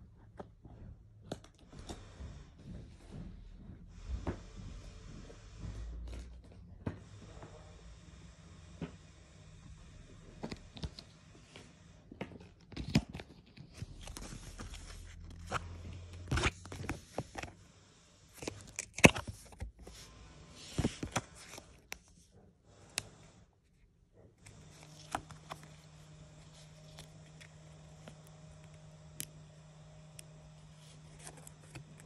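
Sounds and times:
paper sticker crinkling: 12.7s - 17.5s, 24.4s - 29.3s, 30.1s - 32.0s.

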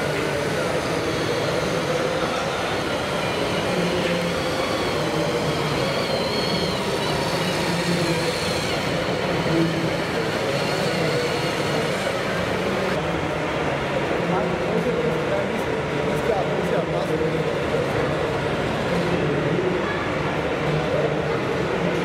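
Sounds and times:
model truck motor whining: 0.0s - 13.0s.

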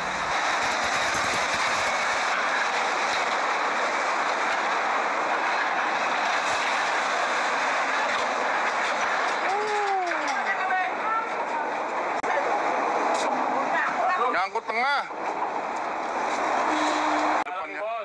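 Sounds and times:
heavy truck rolling over steel ramp: 0.0s - 12.3s.

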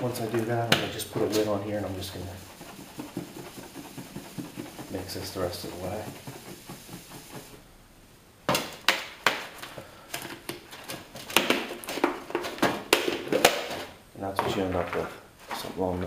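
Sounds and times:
plastic tub rattling: 1.2s - 7.6s.

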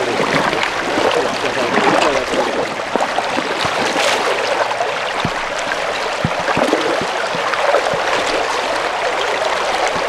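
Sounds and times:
stones stirred underwater: 0.0s - 8.9s
river water rushing: 0.0s - 10.0s
small splashes: 0.0s - 10.0s.

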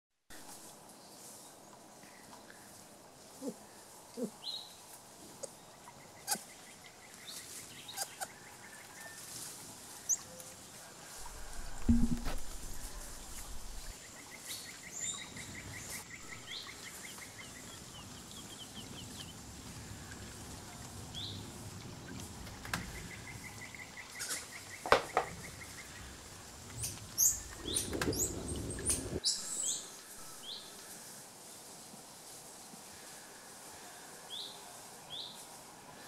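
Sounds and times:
wood knocking on wood: 11.2s - 13.9s, 24.8s - 25.3s
wood scraping: 11.2s - 13.9s
birds trilling and chirping: 11.2s - 30.6s.

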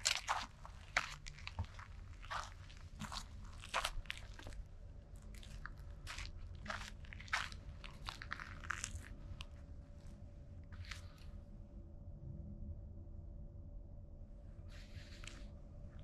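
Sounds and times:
footsteps crunching on dry trail: 0.0s - 9.5s.

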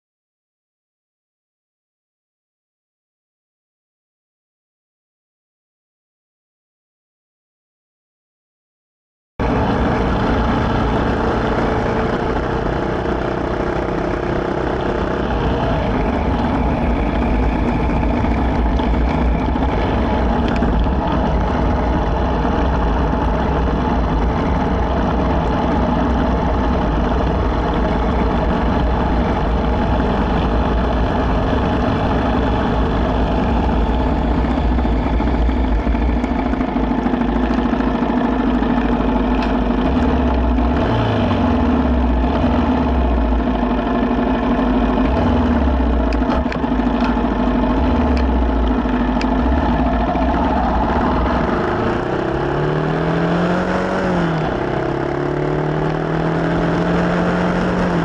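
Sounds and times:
motorcycle engine running: 9.4s - 58.0s
road and wind noise: 9.4s - 58.0s.

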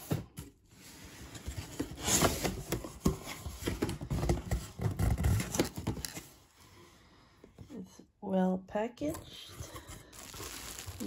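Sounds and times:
packing material rustling: 9.9s - 11.0s.

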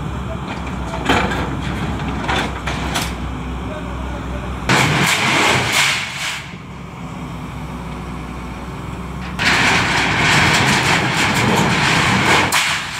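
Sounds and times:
diesel engine running: 0.0s - 12.9s
harsh rushing clattering noise: 4.7s - 6.6s, 9.3s - 12.9s.

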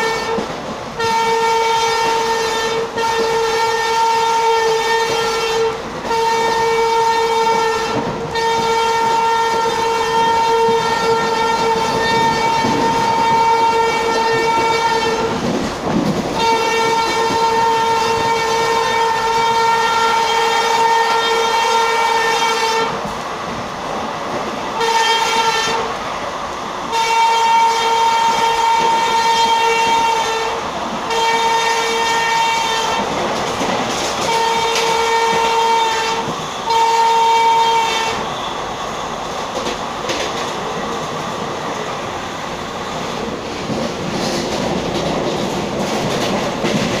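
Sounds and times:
locomotive horn blasts: 0.0s - 0.4s, 1.0s - 15.4s, 16.4s - 23.0s, 24.8s - 25.9s, 26.9s - 33.1s, 34.2s - 38.6s
train rumbling and clattering: 0.0s - 47.0s.

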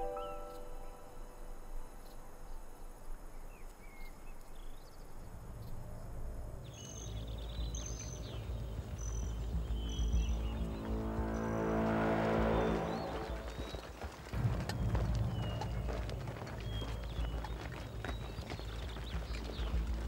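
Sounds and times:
low rumble: 5.3s - 20.0s.

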